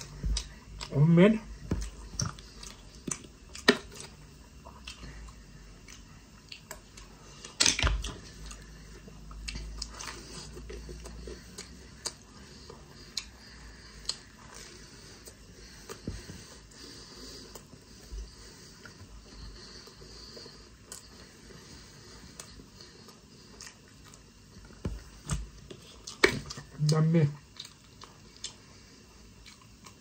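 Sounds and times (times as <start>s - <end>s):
chewing crunchy pastry: 0.0s - 30.0s.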